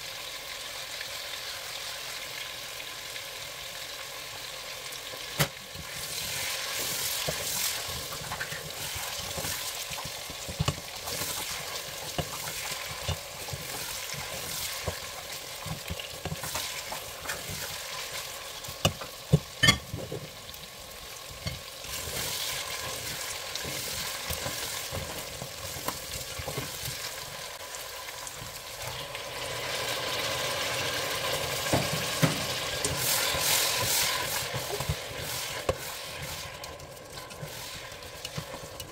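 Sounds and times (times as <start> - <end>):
meat sizzling in oil: 0.0 - 38.9
spatula scraping pot: 5.8 - 20.2, 21.4 - 27.1, 32.7 - 38.9.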